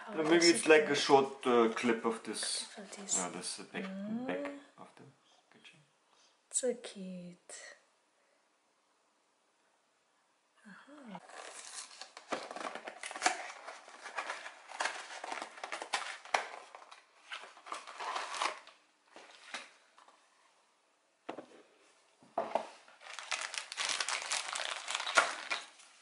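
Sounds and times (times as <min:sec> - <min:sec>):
plastic bag crinkling: 0:11.2 - 0:19.4, 0:22.9 - 0:26.0.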